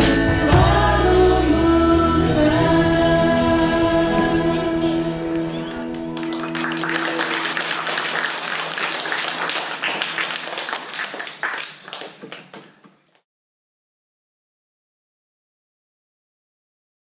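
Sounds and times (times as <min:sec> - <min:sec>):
band and singers final chord: 0:00.0 - 0:07.7
audience applauding: 0:05.3 - 0:13.2.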